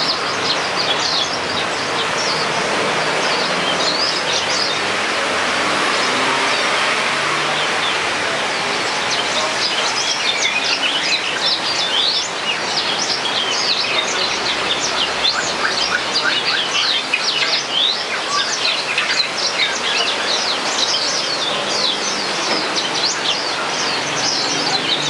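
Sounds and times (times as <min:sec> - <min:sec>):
canary singing: 0:09.0 - 0:25.0.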